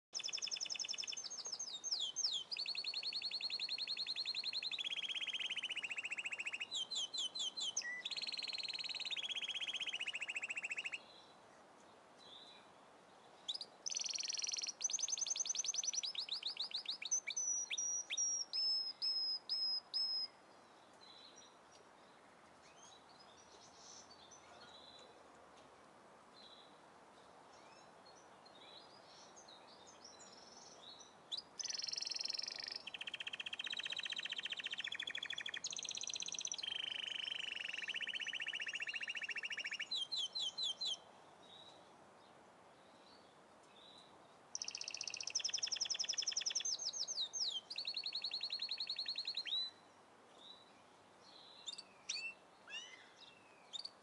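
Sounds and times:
faint steady hiss: 0:00.1 - 0:54.0
songbird trilling: 0:00.2 - 0:11.0, 0:13.5 - 0:20.3, 0:31.3 - 0:41.0, 0:44.5 - 0:49.8.

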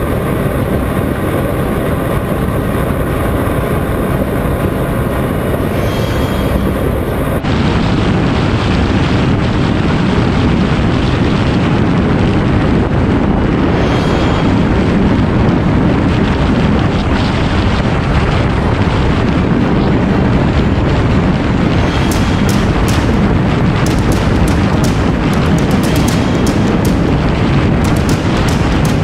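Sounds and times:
road noise: 0:00.0 - 0:29.0
wind rushing on microphone: 0:00.0 - 0:29.0
motorcycle engine: 0:21.4 - 0:29.0.

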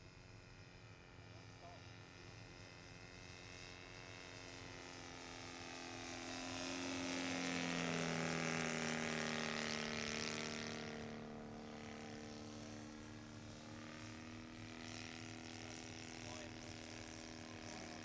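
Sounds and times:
model plane engine drone: 0:00.0 - 0:18.0.

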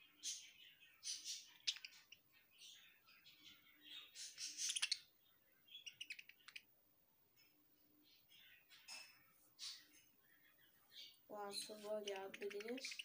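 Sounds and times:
budgerigar chattering: 0:04.2 - 0:05.1, 0:05.8 - 0:06.7, 0:11.5 - 0:13.0.

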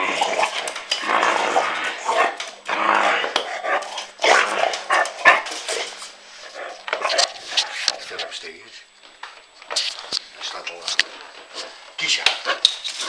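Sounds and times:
puppy growling in play: 0:00.0 - 0:08.3.

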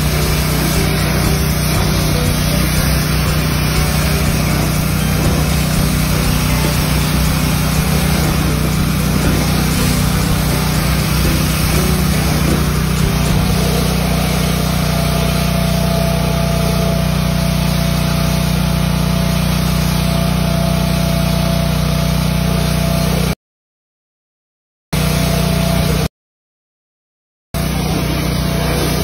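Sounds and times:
water spraying hiss: 0:00.0 - 0:20.2
pressure washer motor hum: 0:00.0 - 0:23.4, 0:25.0 - 0:26.1, 0:27.6 - 0:29.0.

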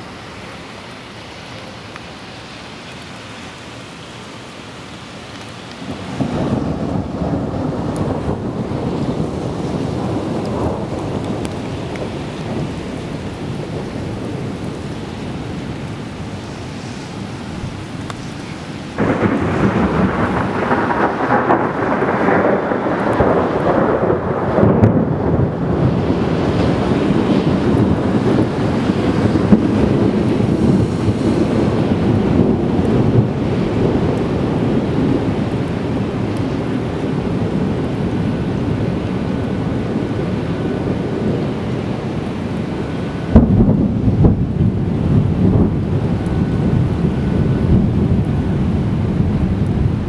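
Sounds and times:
rain: 0:00.0 - 0:50.0
loud rolling thunder: 0:05.9 - 0:15.4, 0:19.0 - 0:42.2, 0:43.2 - 0:50.0.

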